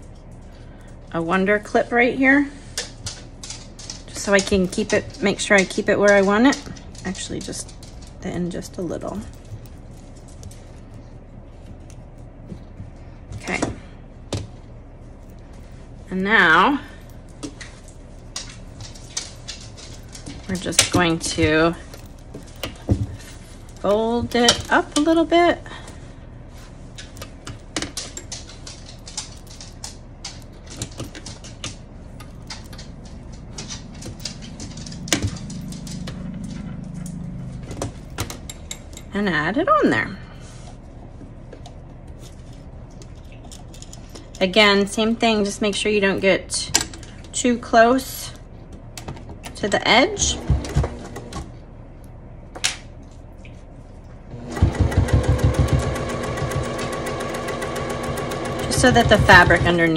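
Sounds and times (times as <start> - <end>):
steady low hum: 0.0 - 59.9
sewing machine stitching: 54.3 - 59.9.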